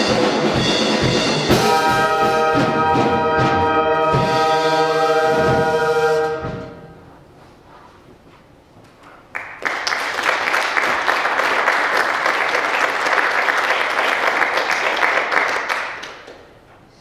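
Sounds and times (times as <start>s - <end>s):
audience applause: 9.3s - 16.6s.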